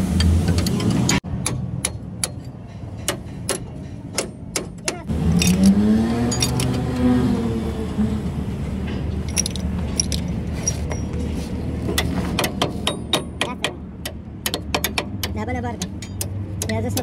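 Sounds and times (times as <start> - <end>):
engine hum: 0.0 - 17.0
engine rising in pitch: 5.1 - 8.8
hand tools clinking on steel: 5.3 - 6.9, 9.2 - 11.3.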